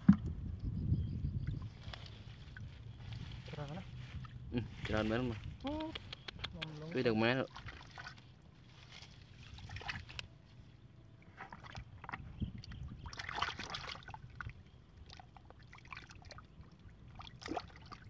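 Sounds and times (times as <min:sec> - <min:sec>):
hand splashing in muddy water: 0:07.4 - 0:10.3, 0:11.3 - 0:16.5, 0:17.1 - 0:18.0.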